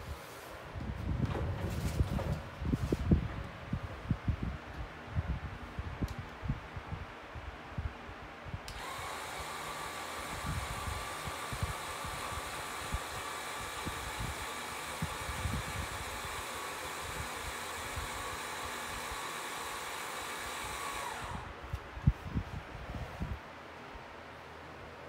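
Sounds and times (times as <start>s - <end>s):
small electric motor whirring: 8.7s - 21.5s.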